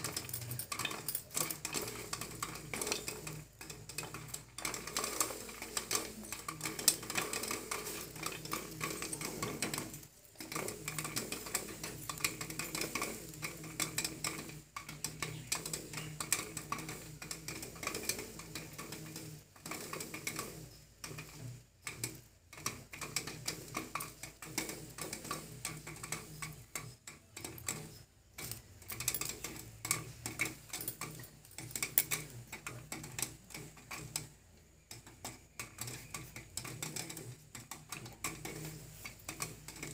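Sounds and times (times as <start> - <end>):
popcorn popping in metal pot: 0.0 - 39.9.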